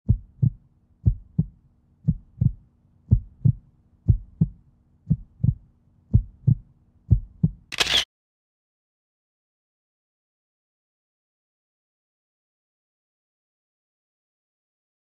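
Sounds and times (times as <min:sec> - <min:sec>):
faint steady hum: 0:00.1 - 0:07.7
heartbeat thumps: 0:00.1 - 0:07.7.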